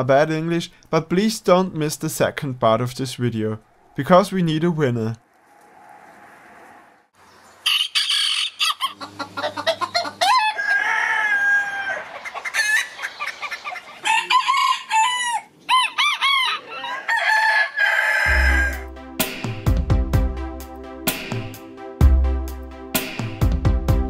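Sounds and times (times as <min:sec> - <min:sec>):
rooster crowing: 0:07.6 - 0:18.9
hens clucking: 0:07.7 - 0:18.8
music with deep bass: 0:18.3 - 0:24.0.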